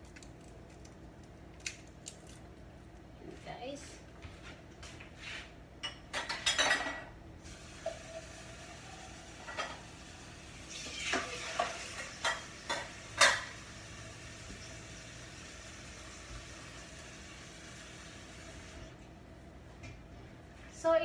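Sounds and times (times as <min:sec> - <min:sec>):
utensils and dishes clattering: 0:05.8 - 0:07.1, 0:09.4 - 0:09.9, 0:10.7 - 0:13.6.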